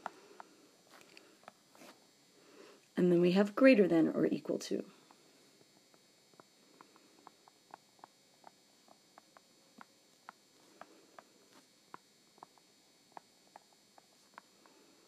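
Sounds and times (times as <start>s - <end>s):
low steady hiss: 0.0s - 15.0s.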